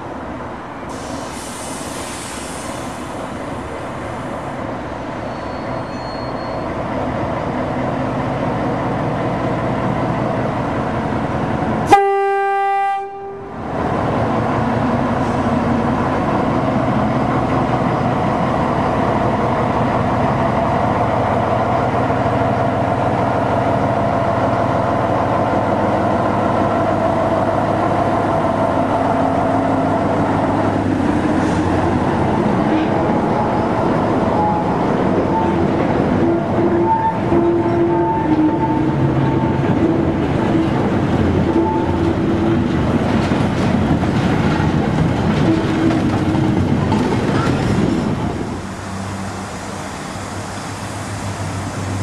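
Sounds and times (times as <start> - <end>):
locomotive horn blast: 11.9 - 13.6, 34.4 - 39.6.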